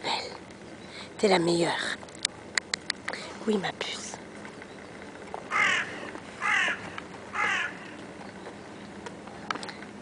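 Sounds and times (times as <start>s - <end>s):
crow cawing: 5.5s - 8.0s.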